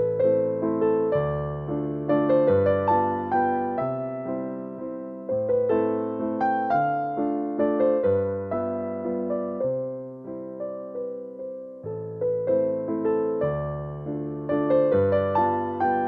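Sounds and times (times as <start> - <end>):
slow piano piece: 0.0 - 16.0.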